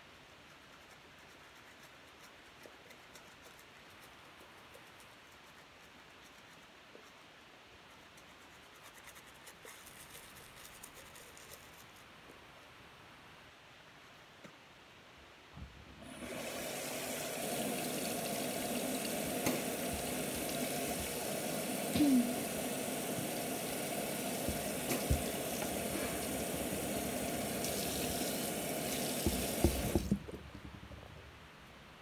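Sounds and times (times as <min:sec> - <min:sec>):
tap running into sink: 0:16.2 - 0:21.3, 0:23.2 - 0:30.8
small knocks and splashes: 0:29.2 - 0:31.0.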